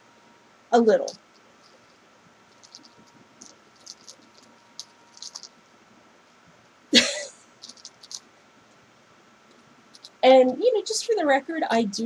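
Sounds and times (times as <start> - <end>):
yarn being handled: 1.0 - 5.6, 7.6 - 8.2
person laughing: 7.0 - 7.4.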